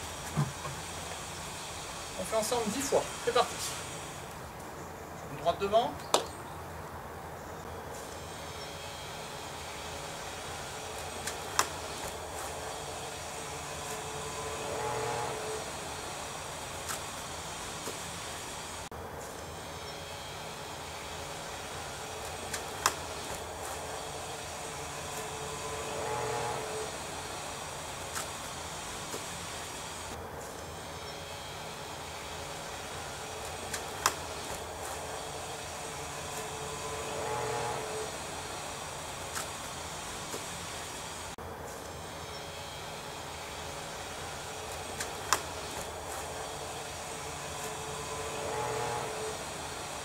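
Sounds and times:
outdoor background hiss: 0.0 - 50.0
hand slapping foot: 11.2 - 12.5, 22.5 - 23.4, 45.0 - 45.5.

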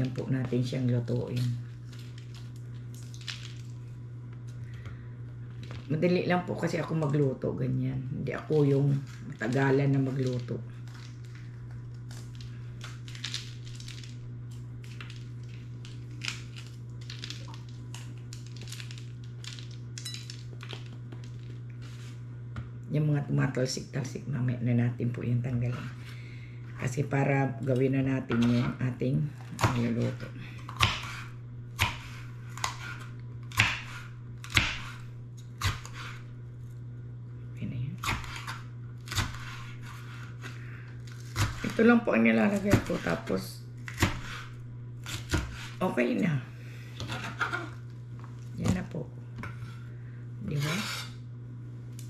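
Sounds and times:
low hum: 0.0 - 52.0
knife chopping on cutting board: 30.7 - 35.0.

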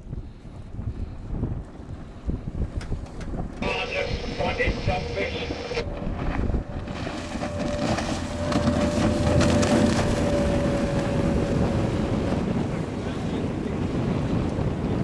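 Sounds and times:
wind buffeting microphone: 0.0 - 15.0
boat engine whine: 2.6 - 15.0
water rushing: 3.6 - 14.2.

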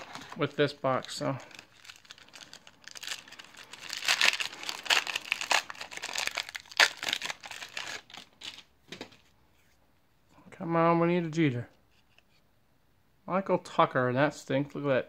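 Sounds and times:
foil wrapper tearing and crinkling: 1.0 - 8.7.

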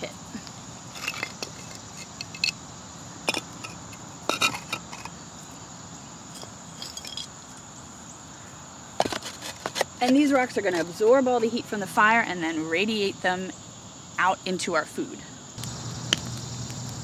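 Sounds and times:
high insect drone: 0.0 - 17.0
stones clinking together: 0.4 - 2.6, 3.3 - 5.2, 6.3 - 7.4.

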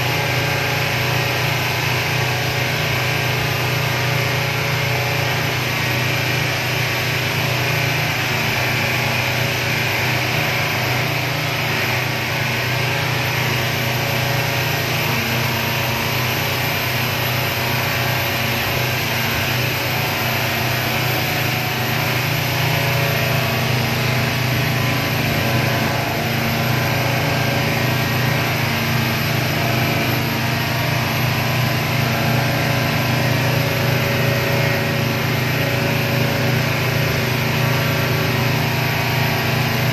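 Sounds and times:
motorboat engine droning: 0.0 - 39.9
water rushing against hull: 0.0 - 39.9
wind: 0.0 - 39.9.

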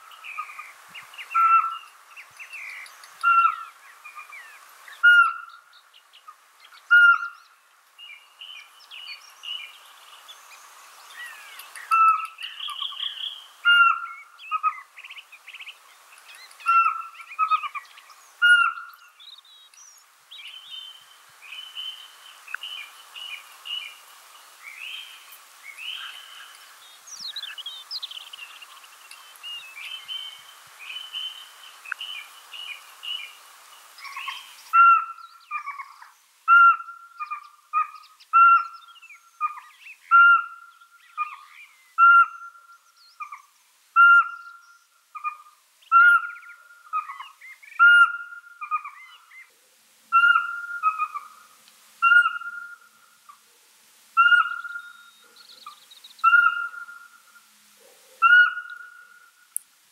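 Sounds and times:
steady hiss: 0.0 - 59.9
owl whistled notes: 34.1 - 35.9, 42.0 - 43.4, 44.0 - 44.6, 47.8 - 49.2, 50.1 - 51.3, 52.0 - 52.9, 54.2 - 55.2, 56.2 - 57.1, 58.2 - 59.3.

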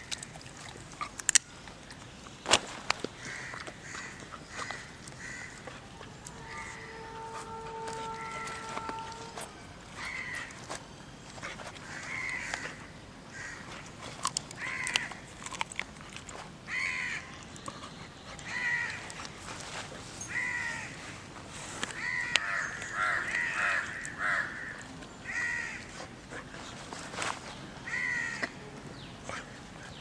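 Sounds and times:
crow cawing: 3.3 - 5.6, 6.4 - 9.3, 10.0 - 10.5, 11.9 - 12.7, 13.3 - 13.6, 22.0 - 25.8, 27.9 - 28.5.

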